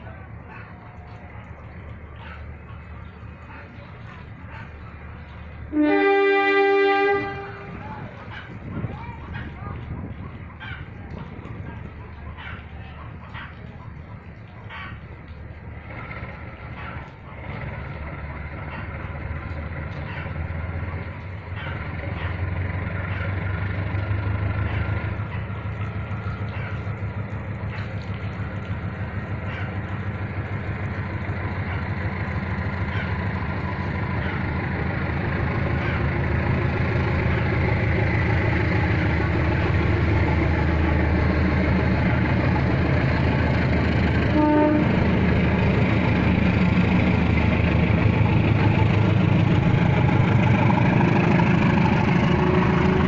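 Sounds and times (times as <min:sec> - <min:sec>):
diesel locomotive engine rumble: 0:00.0 - 0:53.0
locomotive horn: 0:05.7 - 0:08.0, 0:44.1 - 0:46.3, 0:50.6 - 0:53.0.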